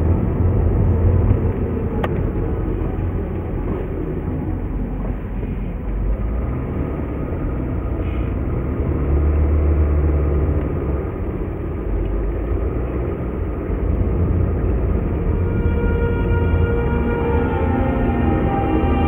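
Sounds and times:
car road and engine rumble: 0.0s - 19.0s
vehicle passing alongside: 0.0s - 19.0s.

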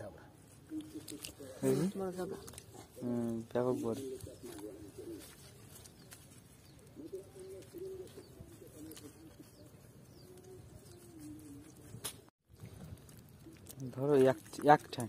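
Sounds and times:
low cooing bird calls: 0.5s - 15.0s.

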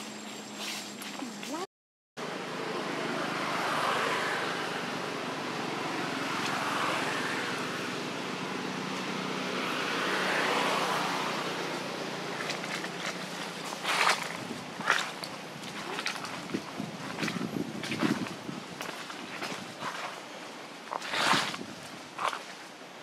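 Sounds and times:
distant road traffic: 2.2s - 23.0s
dry leaves rustling: 10.5s - 22.7s.

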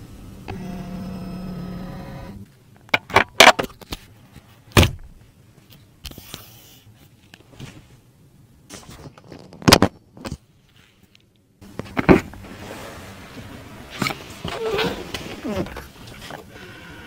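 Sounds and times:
electric motor whining: 0.4s - 2.4s.

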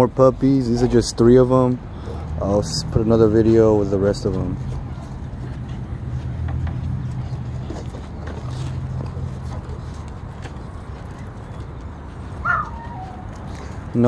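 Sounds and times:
puppy whining: 12.4s - 13.4s.

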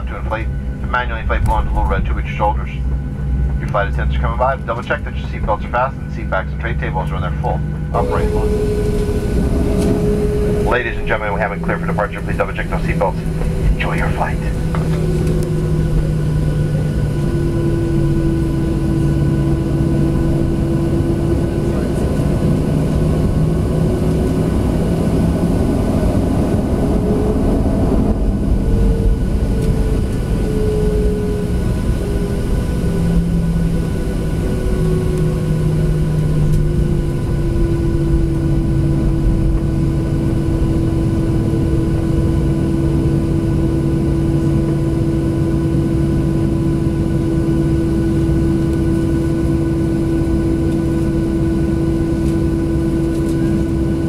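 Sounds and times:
jet engines humming: 0.0s - 54.0s.

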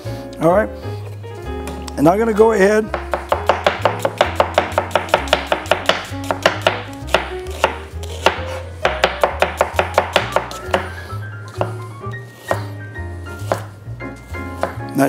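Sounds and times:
knife chopping on plastic board: 2.9s - 11.0s, 11.6s - 11.8s, 12.4s - 12.8s, 13.4s - 13.7s, 14.6s - 14.8s.

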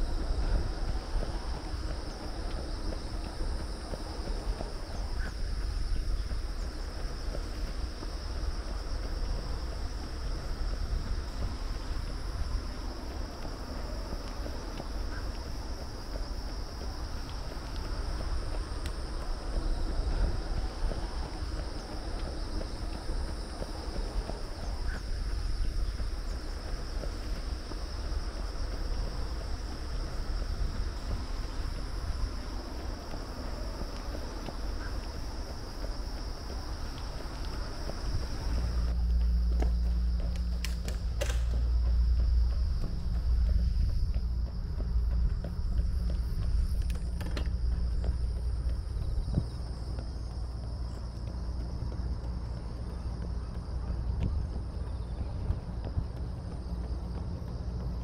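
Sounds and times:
wind on microphone: 0.0s - 39.5s, 41.0s - 51.2s
insects chirring: 0.0s - 58.0s.

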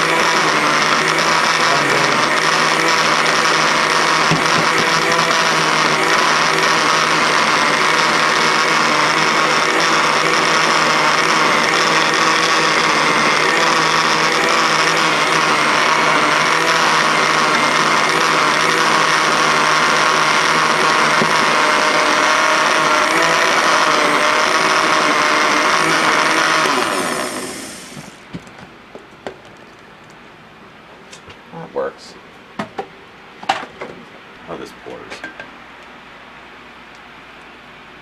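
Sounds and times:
blender motor running: 0.0s - 28.2s.

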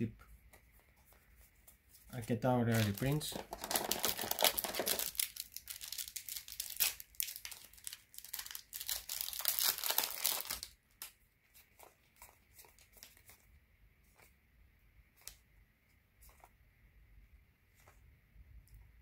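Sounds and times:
foil pack crinkling and tearing: 2.7s - 11.2s.

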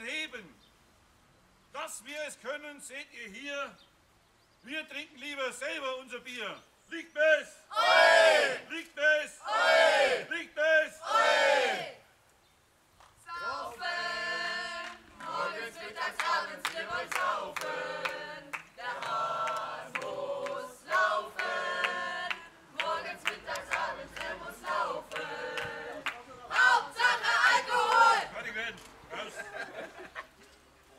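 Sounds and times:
group singing unaccompanied: 7.7s - 8.6s, 9.4s - 10.3s, 13.2s - 28.4s.

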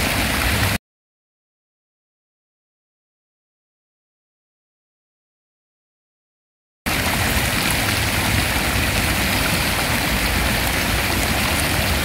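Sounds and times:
fountain water splashing: 0.0s - 0.8s, 6.9s - 12.0s.

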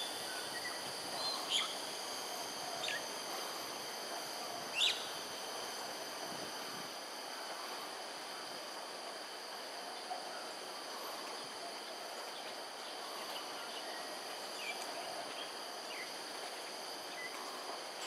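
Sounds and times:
insect chorus: 0.0s - 18.0s.

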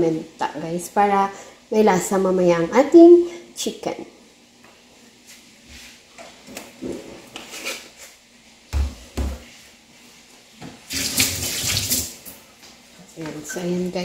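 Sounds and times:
kitchen tap running: 10.9s - 12.3s.

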